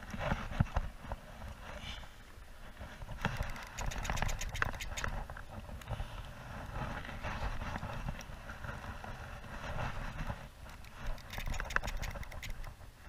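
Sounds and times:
fishing reel clicking: 3.4 - 5.1, 10.7 - 12.7.

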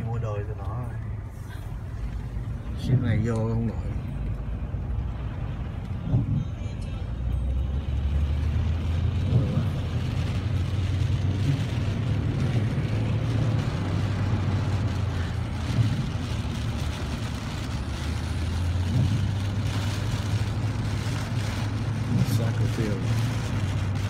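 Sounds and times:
car engine low hum: 0.0 - 24.0
tyres hissing on wet road: 7.0 - 24.0.

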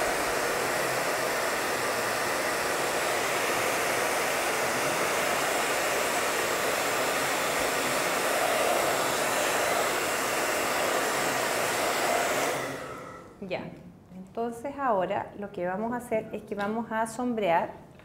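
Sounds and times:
hair dryer blowing: 0.0 - 13.4.

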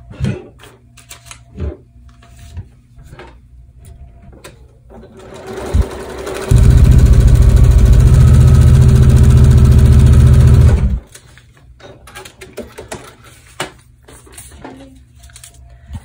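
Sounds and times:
fabric and paper rustling: 2.1 - 2.8, 13.1 - 16.0
sewing machine stitching: 5.1 - 11.0.

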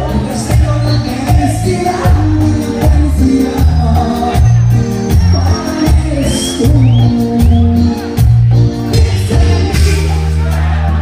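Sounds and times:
live band playing: 0.0 - 11.0.

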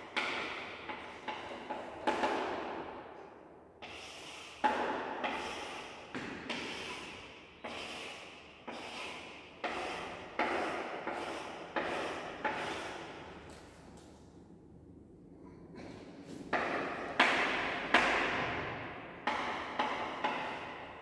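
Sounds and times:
chalk scraping on chalkboard: 3.8 - 5.9, 6.5 - 13.2.

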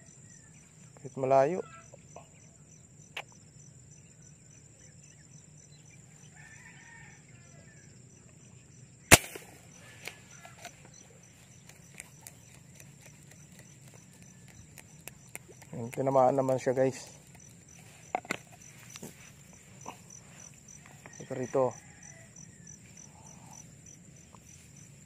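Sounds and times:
air rifle shot: 9.1 - 9.6.

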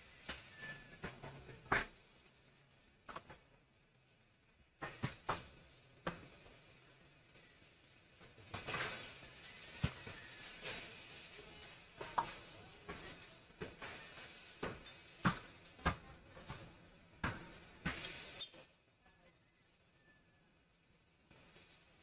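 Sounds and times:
small tools clicking and knocking: 7.6 - 18.7.

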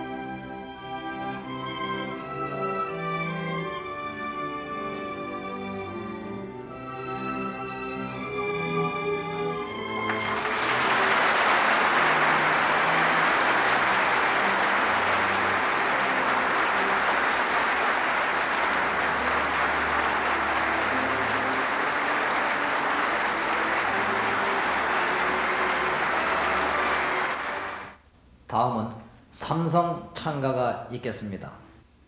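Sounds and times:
instrumental background music: 0.0 - 28.0
audience applauding: 9.6 - 28.0.

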